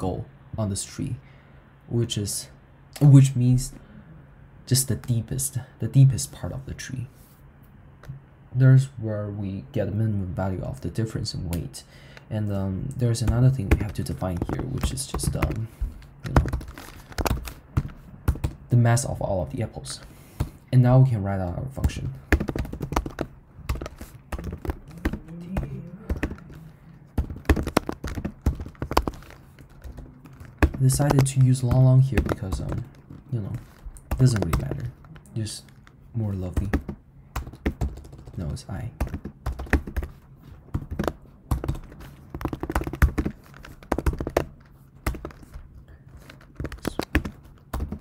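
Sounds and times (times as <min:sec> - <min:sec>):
typing on computer keyboard: 0:16.2 - 0:18.6, 0:21.8 - 0:33.2, 0:34.0 - 0:35.1, 0:35.7 - 0:45.6, 0:46.2 - 0:48.0.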